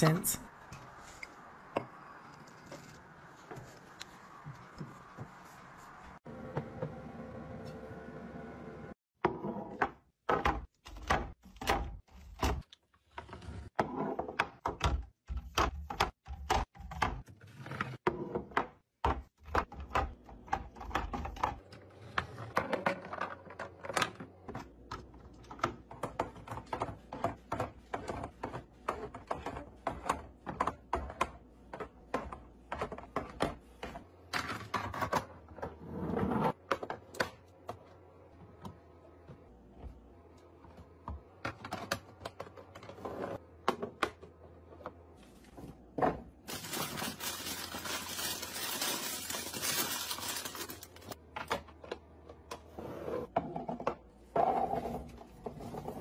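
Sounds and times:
small items clicking and clattering: 46.5s - 51.2s.

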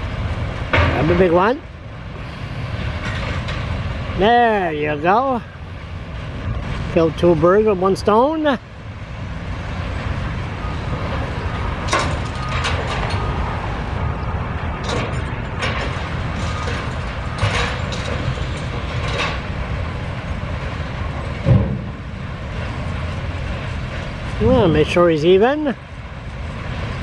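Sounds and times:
diesel engine low rumble: 0.0s - 27.0s
sharp knocks and clanks: 11.9s - 13.3s, 14.8s - 19.5s, 21.4s - 22.0s.

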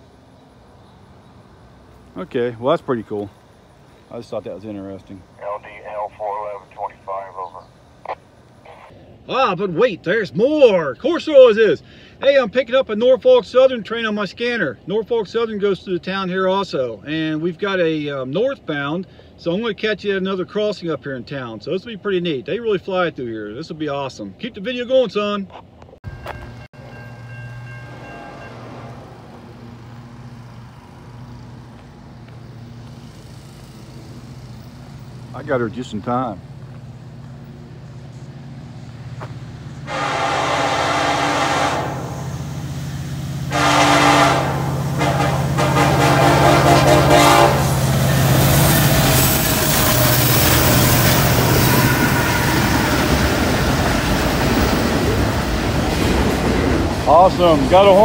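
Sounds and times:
diesel locomotive engines droning: 0.0s - 58.0s
train wheels rumbling on rail: 26.1s - 58.0s
engine running with low hum: 28.8s - 39.9s
locomotive air horn: 39.8s - 42.7s, 43.5s - 53.2s.

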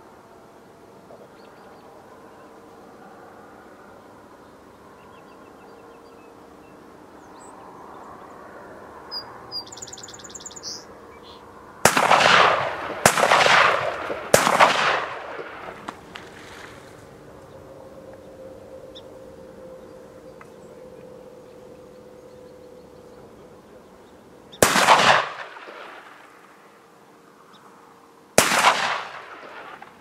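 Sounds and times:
shotgun shots with echo: 11.8s - 16.0s, 24.6s - 26.4s, 28.4s - 30.0s.

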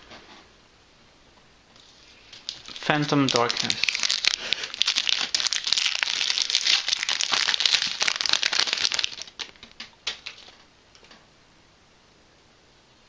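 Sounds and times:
cards rustling: 1.8s - 10.6s
foil wrapper crinkling: 1.8s - 10.6s.

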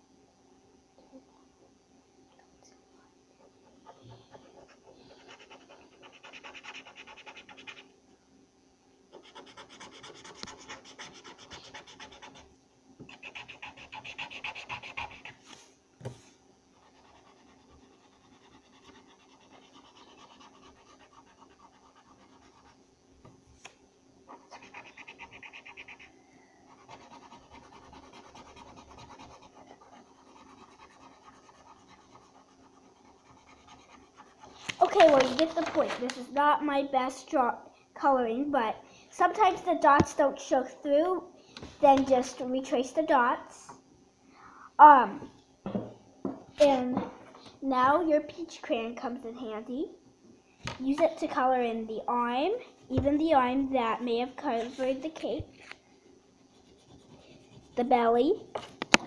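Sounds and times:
marker scribbling on paper: 3.8s - 7.8s, 9.1s - 12.4s, 13.1s - 15.4s, 16.8s - 22.8s, 24.3s - 26.1s, 26.7s - 35.2s, 56.5s - 58.8s.

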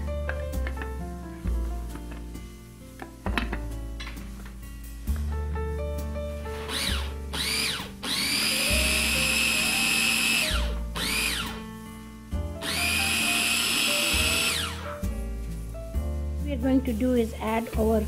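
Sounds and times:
food processor motor whining: 6.6s - 11.6s, 12.6s - 14.9s.

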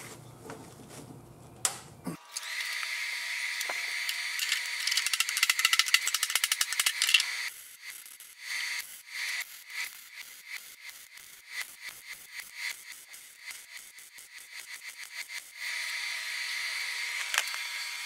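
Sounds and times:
arc welder crackling buzz: 1.6s - 18.0s.

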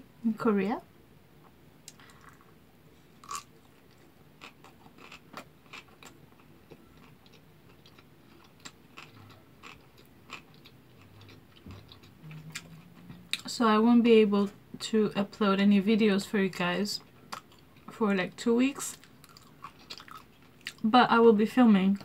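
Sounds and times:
person chewing food: 1.9s - 13.5s, 17.3s - 17.9s, 19.0s - 20.8s.

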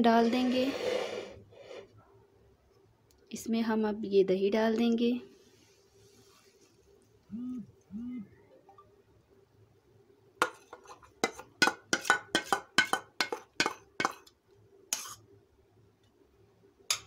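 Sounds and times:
metal spoon clinking in metal bowl: 10.4s - 14.3s.

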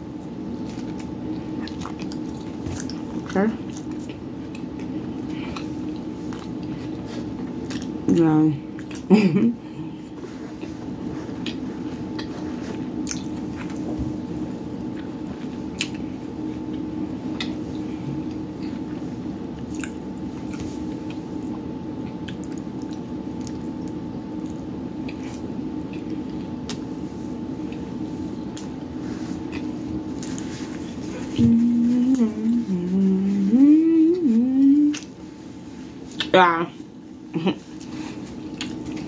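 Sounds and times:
steady background hum: 0.0s - 39.0s
person chewing wetly: 0.5s - 8.0s, 8.7s - 9.1s, 10.5s - 13.9s, 14.8s - 18.9s, 19.6s - 26.9s, 27.6s - 28.8s, 29.4s - 31.4s, 34.9s - 35.2s, 37.7s - 39.0s.

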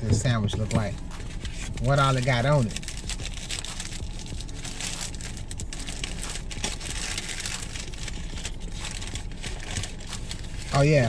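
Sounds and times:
paper wrapper crinkling: 0.7s - 11.0s.

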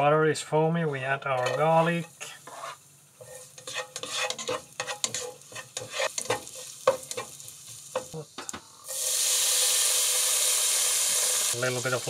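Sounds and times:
garlic sizzling in butter: 1.3s - 12.0s
spatula scraping and tapping pan: 1.4s - 8.2s.

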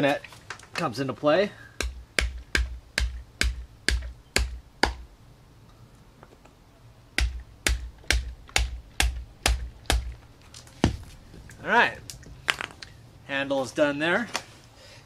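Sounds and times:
coconut knocking plastic pipe: 1.8s - 5.0s, 7.2s - 10.2s.

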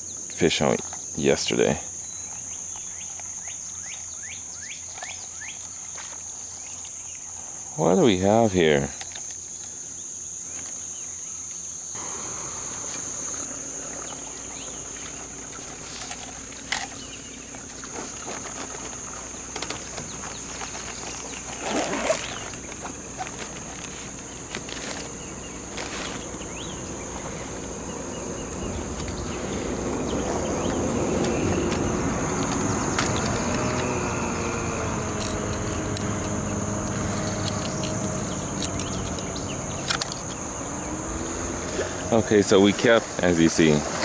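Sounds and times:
insects droning: 0.0s - 44.0s
low noise: 11.7s - 44.0s.

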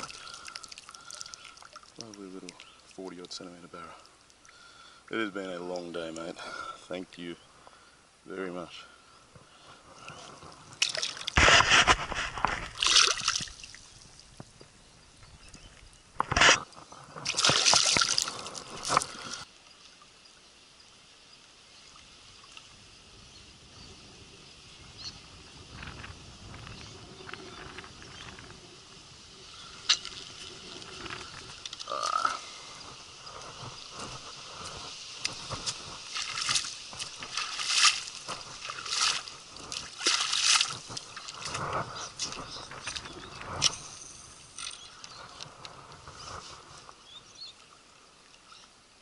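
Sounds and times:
water splashing: 0.0s - 4.7s, 10.1s - 14.4s, 16.2s - 19.5s, 29.6s - 44.6s
faint river sounds: 0.0s - 49.0s.

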